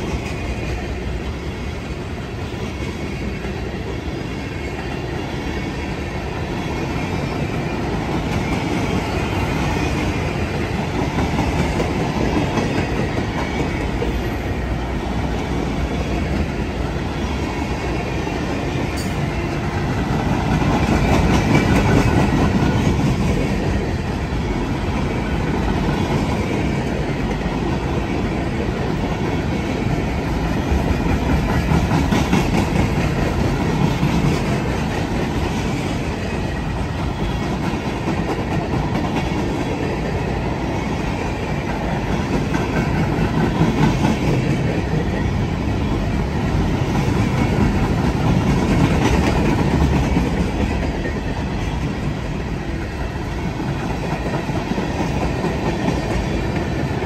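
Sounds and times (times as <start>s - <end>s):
train wheels clattering over rail joints: 18.9s - 23.9s, 30.2s - 36.0s.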